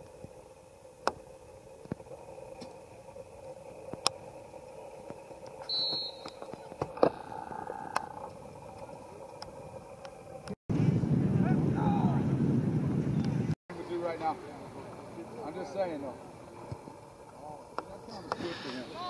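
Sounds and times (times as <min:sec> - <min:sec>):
faint steady hum: 0:00.0 - 0:11.3, 0:12.0 - 0:19.0
brief high whistle: 0:05.7 - 0:06.4.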